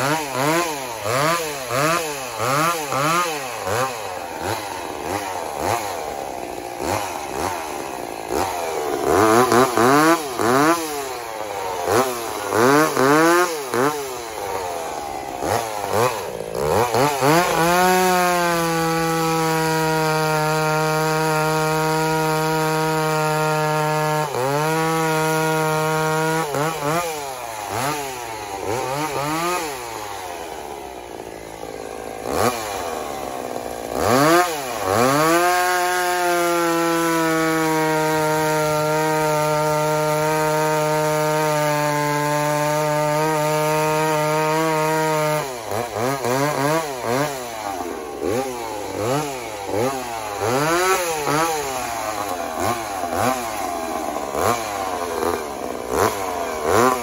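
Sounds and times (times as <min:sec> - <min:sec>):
chainsaw revving and cutting: 0:00.0 - 0:57.0.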